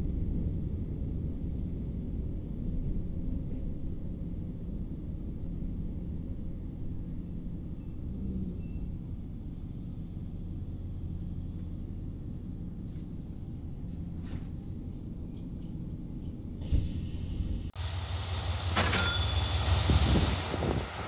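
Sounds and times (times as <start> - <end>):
diesel engine idling hum: 0.0 - 21.0
hiss: 16.6 - 18.2.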